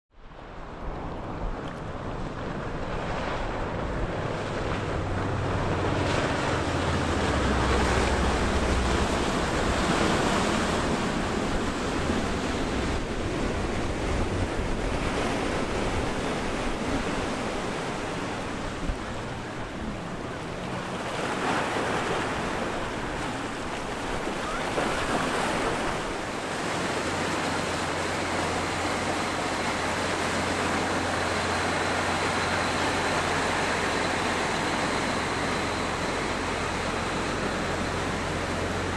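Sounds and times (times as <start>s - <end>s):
low steady engine drone: 0.1s - 38.9s
water rushing from boat wakes: 0.1s - 38.9s
wind buffeting microphone: 0.3s - 38.9s.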